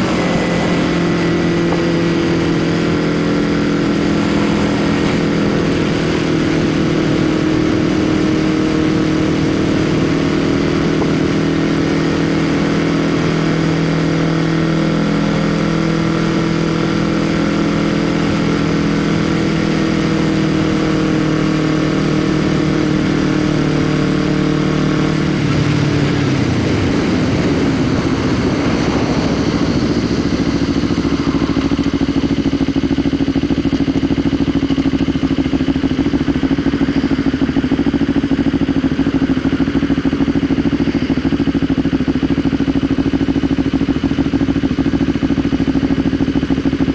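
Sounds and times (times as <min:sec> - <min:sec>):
motorcycle engine cruising: 0:00.0 - 0:46.9
wind rushing: 0:25.5 - 0:33.9.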